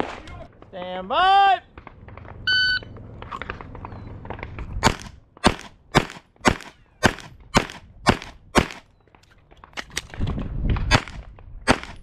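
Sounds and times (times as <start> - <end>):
pistol shots: 4.8 - 8.9, 10.9 - 12.0.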